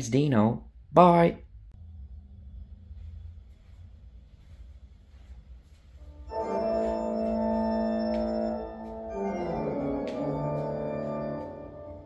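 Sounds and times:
organ chords: 6.0 - 12.0.

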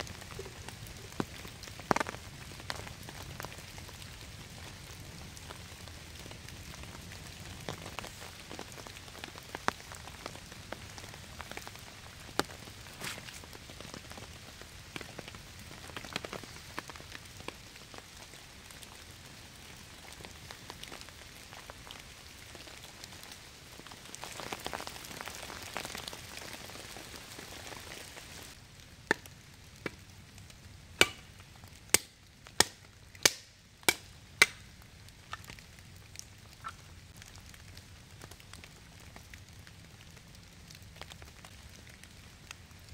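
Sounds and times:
campfire crackling: 0.0 - 42.9
steady rain: 0.0 - 42.9
hatchet chopping wood: 31.0 - 31.2, 32.0 - 34.6.

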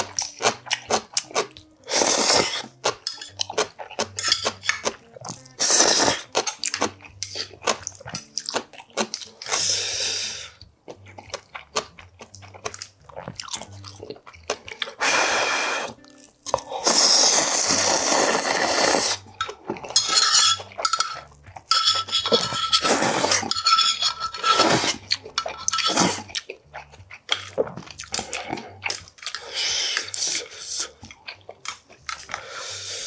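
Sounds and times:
wet chewing: 0.0 - 23.6, 24.4 - 32.9
loud noodle slurps: 1.9 - 2.6, 5.6 - 6.2, 16.8 - 19.2, 24.4 - 25.0.

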